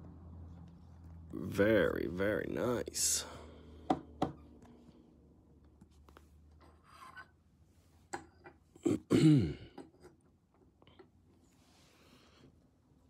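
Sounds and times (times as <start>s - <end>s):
man clearing throat: 8.8s - 9.8s.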